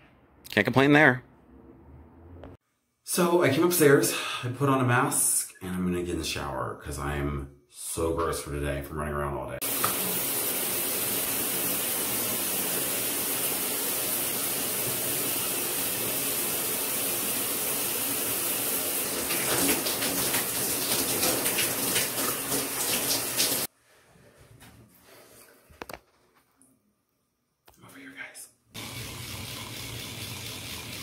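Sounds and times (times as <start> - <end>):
shower water spraying: 9.6 - 23.7, 28.8 - 31.0.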